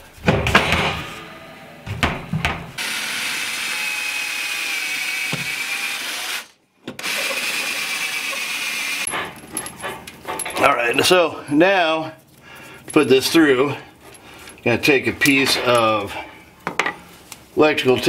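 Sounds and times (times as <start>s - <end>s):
knocks: 1.9s - 2.8s
cordless drill whining: 2.8s - 9.1s.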